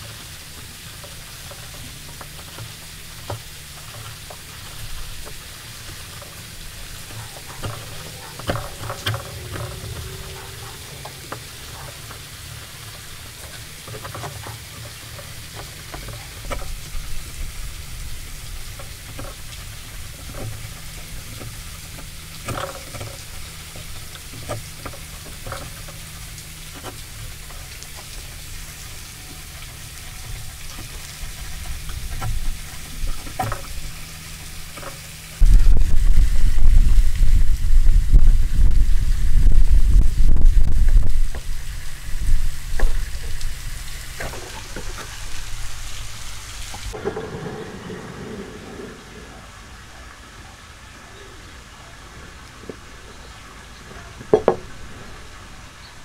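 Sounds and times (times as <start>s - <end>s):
steady low hum: 0.0s - 56.0s
sharp clicks and knocks: 53.9s - 54.8s.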